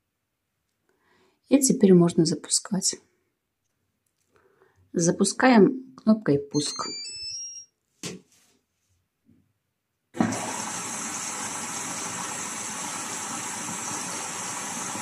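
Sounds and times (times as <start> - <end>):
electronic beeps: 6.5 - 7.7
water rushing into washing machine: 10.2 - 15.0.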